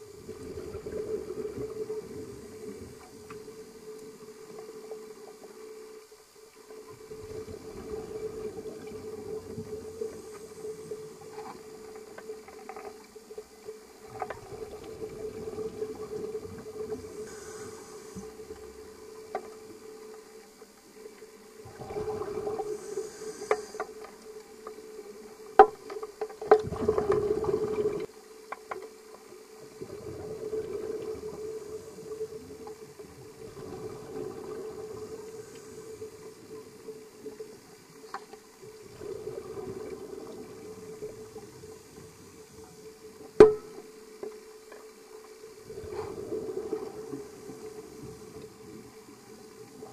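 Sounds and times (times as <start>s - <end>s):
steady hum: 0.0s - 28.4s
diver exhaling bubbles underwater: 21.6s - 23.8s, 26.6s - 28.1s.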